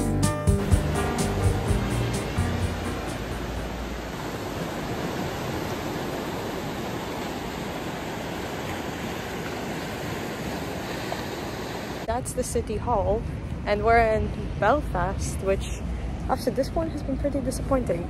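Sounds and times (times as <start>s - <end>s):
background music: 0.0s - 3.9s
steady rushing noise: 0.5s - 8.1s.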